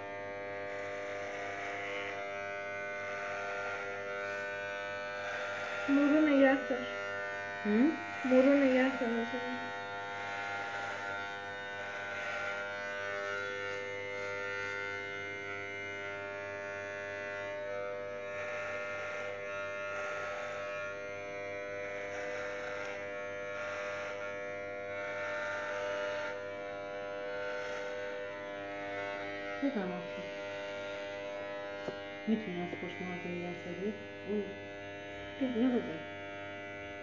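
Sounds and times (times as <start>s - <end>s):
electric hair clippers buzzing: 0.0s - 37.0s.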